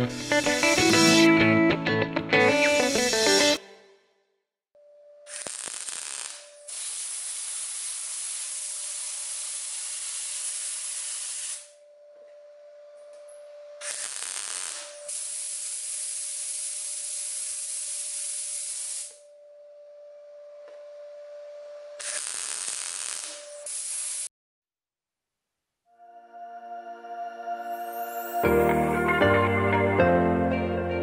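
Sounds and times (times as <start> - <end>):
welding arc hissing: 0.0 - 1.4, 2.4 - 3.6, 5.3 - 11.8, 13.8 - 19.3, 22.0 - 24.3
faint steady whine: 19.2 - 22.0.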